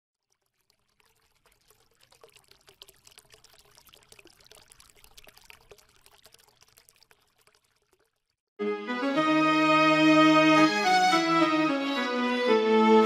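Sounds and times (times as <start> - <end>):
water trickling: 0.2 - 8.5
violin music: 8.6 - 13.0.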